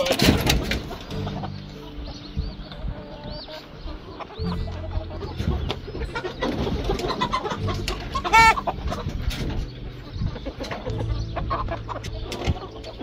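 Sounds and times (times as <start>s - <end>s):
chickens clucking: 0.0s - 13.0s
chicken squawk: 2.9s - 9.1s.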